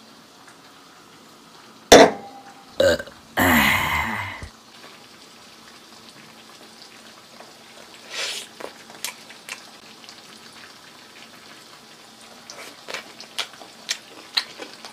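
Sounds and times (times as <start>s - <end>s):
loud burp: 2.8s - 4.5s.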